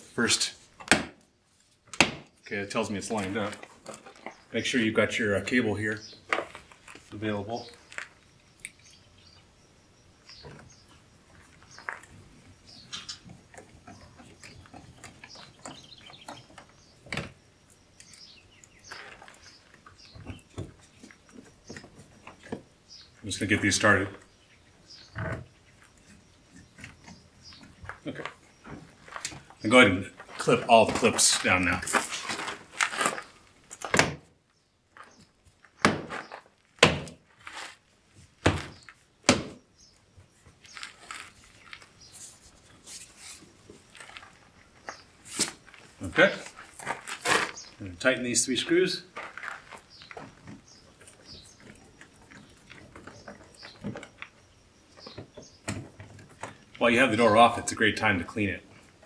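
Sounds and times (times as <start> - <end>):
birds chirping: 2.3 - 33.8, 34.5 - 36.7, 38.5 - 59.0
car parts clicking and knocking: 49.2 - 56.8.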